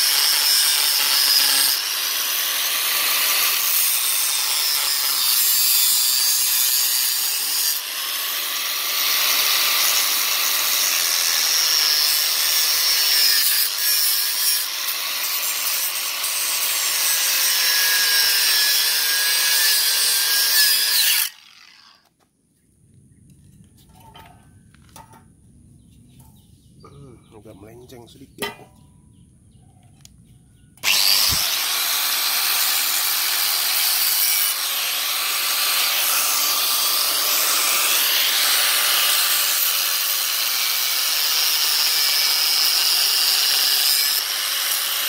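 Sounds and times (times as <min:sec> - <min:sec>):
angle grinder cutting steel: 0:00.0 - 0:22.1, 0:30.8 - 0:45.0.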